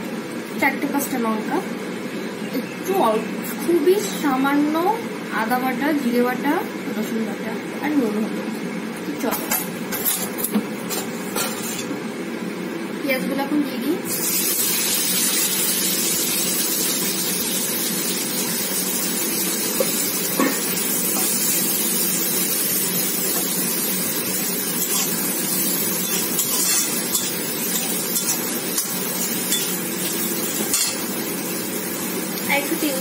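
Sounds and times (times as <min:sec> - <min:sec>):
onions sizzling in hot oil: 0:14.1 - 0:33.0
spatula scraping pan: 0:26.0 - 0:31.0.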